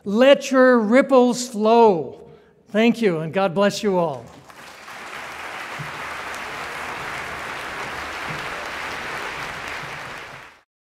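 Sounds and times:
audience applauding: 0:04.3 - 0:10.7.

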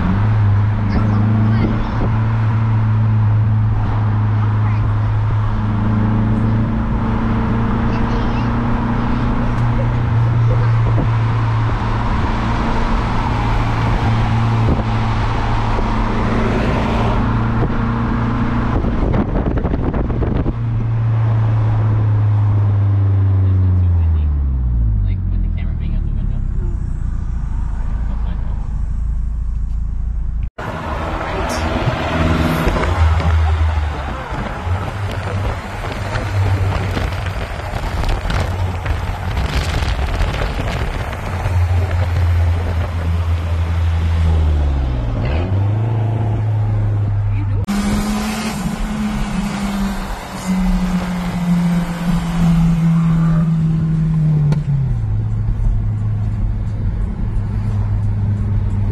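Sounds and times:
car engine droning: 0:00.0 - 0:58.9
wind buffeting: 0:08.5 - 0:22.9, 0:30.6 - 0:54.4.

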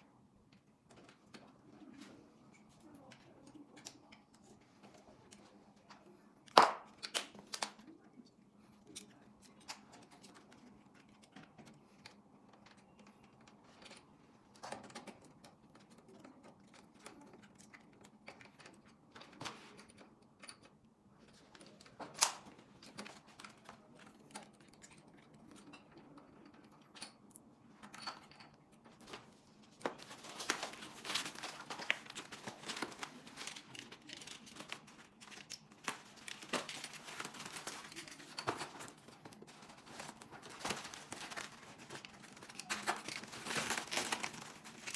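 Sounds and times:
foam packaging crinkling and tearing: 0:29.9 - 0:44.9.

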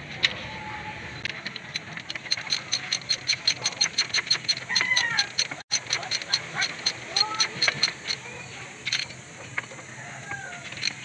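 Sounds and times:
ratchet wrench clicking: 0:01.2 - 0:11.0.

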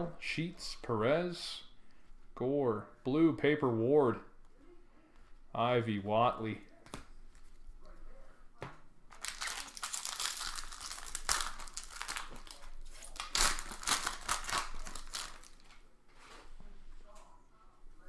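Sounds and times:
foil wrappers crinkling: 0:09.1 - 0:15.7.

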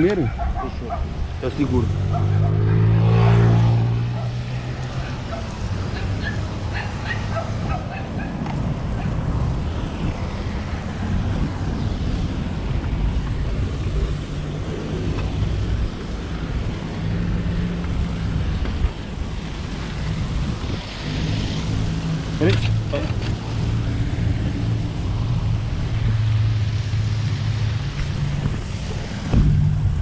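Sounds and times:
traffic rumble: 0:00.0 - 0:30.0
wind on microphone: 0:00.0 - 0:30.0.

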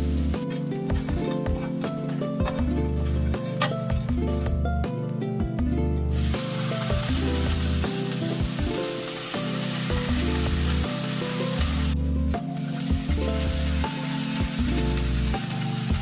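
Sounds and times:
fish sizzling in a frying pan: 0:00.0 - 0:00.4, 0:06.1 - 0:16.0.

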